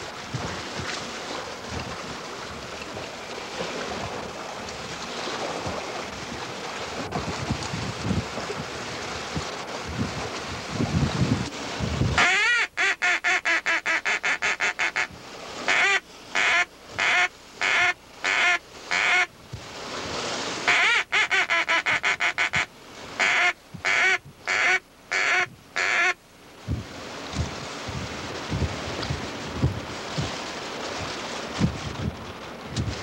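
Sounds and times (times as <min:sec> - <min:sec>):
duck call quacks: 0:12.2 - 0:15.1, 0:15.7 - 0:19.3, 0:20.7 - 0:26.2.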